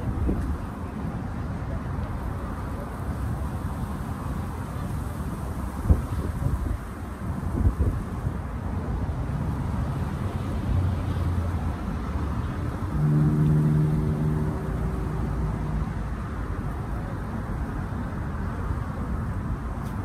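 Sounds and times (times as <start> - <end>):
road traffic rumble: 0.0 - 20.0
vehicle engine humming: 8.6 - 20.0.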